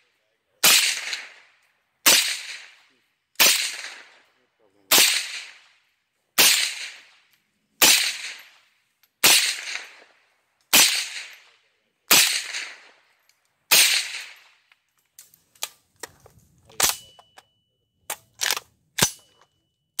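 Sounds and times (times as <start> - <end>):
suppressed rifle shots with echo: 0.6 - 14.7.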